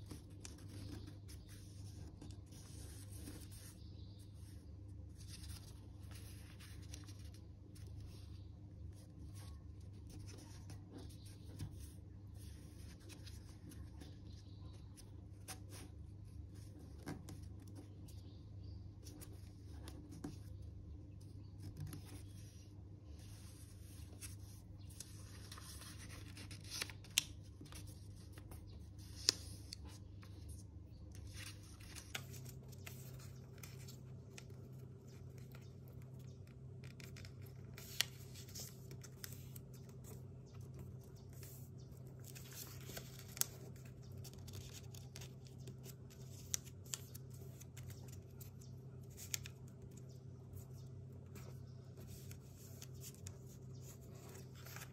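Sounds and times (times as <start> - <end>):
paper being folded and creased: 0.0 - 14.8, 21.5 - 54.9
sharp paper crackles: 23.3 - 30.6, 31.2 - 54.9.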